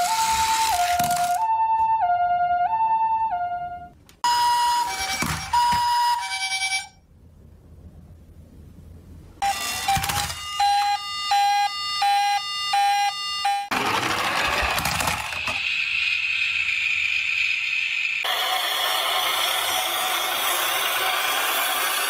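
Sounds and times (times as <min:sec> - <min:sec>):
harsh toy siren: 0:00.0 - 0:03.4, 0:04.2 - 0:06.9, 0:09.4 - 0:17.1
beeping two-tone toy siren: 0:00.0 - 0:07.0, 0:09.4 - 0:15.8.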